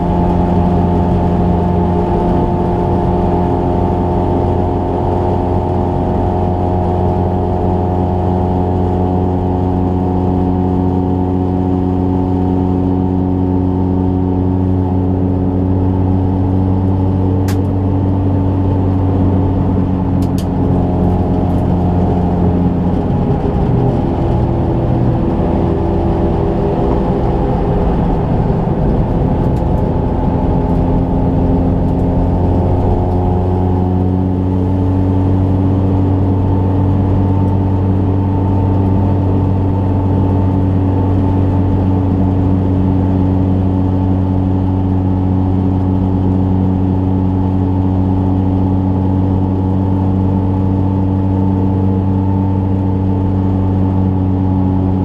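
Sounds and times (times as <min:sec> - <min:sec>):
car engine droning: 0:00.0 - 0:55.0.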